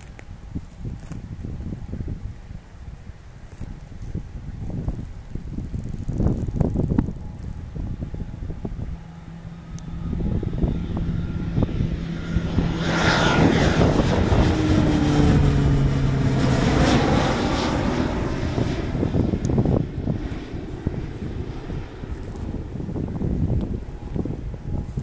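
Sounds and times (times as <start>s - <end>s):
propeller aircraft passing overhead: 0.0s - 25.0s.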